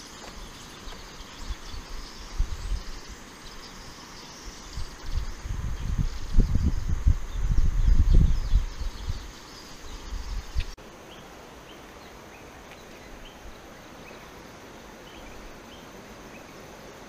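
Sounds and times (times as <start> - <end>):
wind rumbling on microphone: 0.0 - 10.8.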